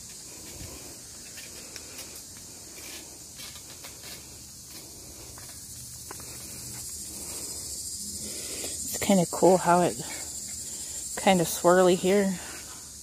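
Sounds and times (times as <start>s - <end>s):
footsteps on concrete: 0.0s - 7.2s
steady high-pitched hiss: 0.0s - 13.0s.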